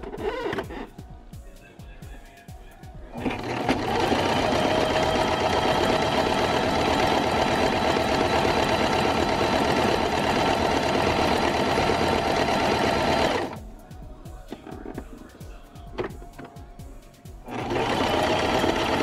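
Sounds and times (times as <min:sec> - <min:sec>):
sewing machine stitching rattle: 0:03.2 - 0:13.6, 0:17.5 - 0:19.0.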